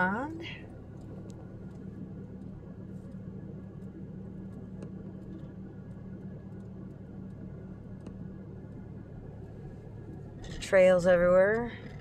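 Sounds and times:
car engine hum: 0.0 - 12.0
faint clicks: 0.9 - 9.4.

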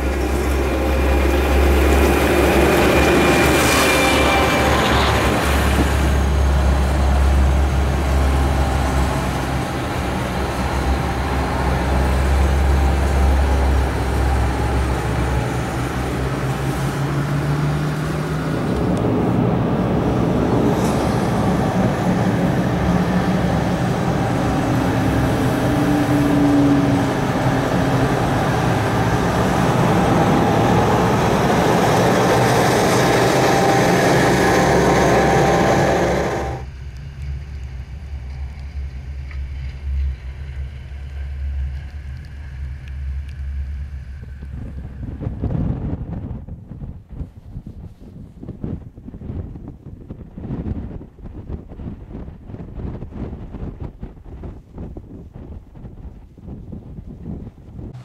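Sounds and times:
train locomotive passing: 0.0 - 45.9
car engine running: 33.7 - 36.6.

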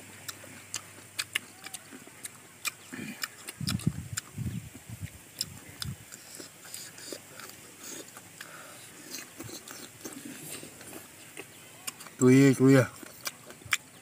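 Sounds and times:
crunchy chewing of fruit: 0.0 - 14.0
low rumbling: 2.9 - 6.1.

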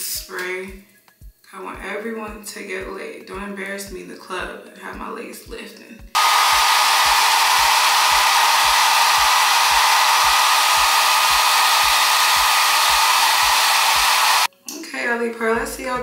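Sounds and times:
hair dryer blowing: 6.2 - 14.5.

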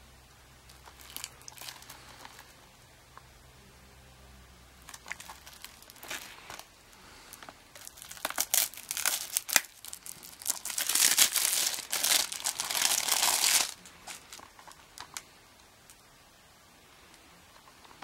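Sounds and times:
plastic wrap crackling: 0.6 - 3.2, 4.8 - 16.1
plastic wrap crinkling and tearing: 0.7 - 2.6, 4.8 - 16.1.

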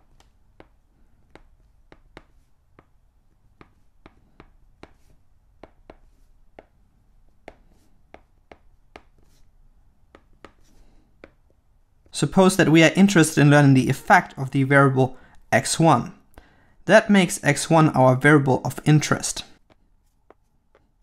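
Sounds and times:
stylus tapping on tablet screen: 0.0 - 12.1, 19.6 - 21.0.

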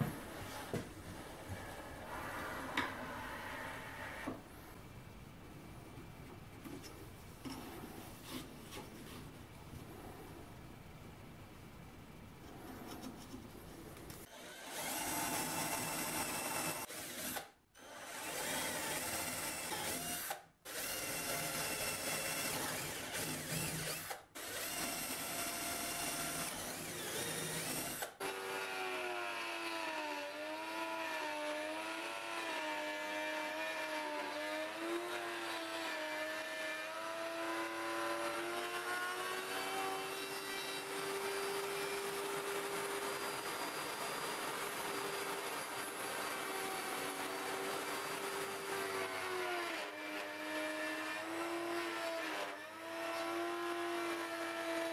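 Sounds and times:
router whining: 14.2 - 54.9
cordless drill boring wood: 14.3 - 54.9.

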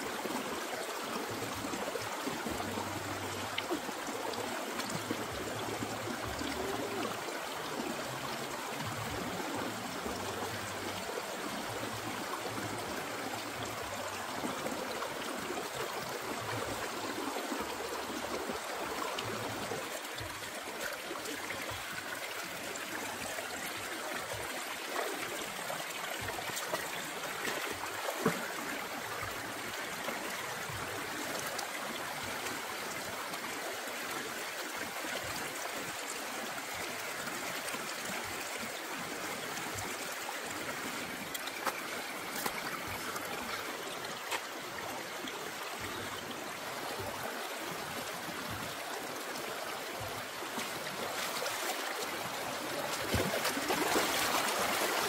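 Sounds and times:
water flowing: 0.0 - 55.0.

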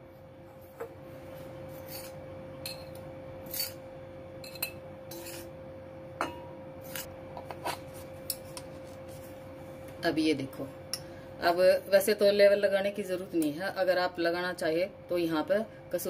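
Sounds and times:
faint steady hum: 0.0 - 16.0
glass clinking against pan: 6.2 - 6.6.

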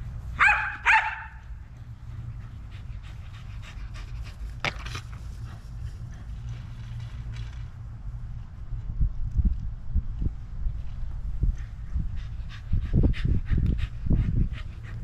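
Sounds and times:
dog barking: 0.4 - 1.4
dog panting softly: 1.8 - 4.6, 11.4 - 15.0.

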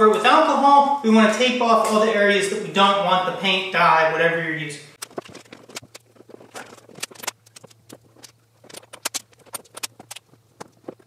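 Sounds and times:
masking tape crackling: 5.0 - 11.0.

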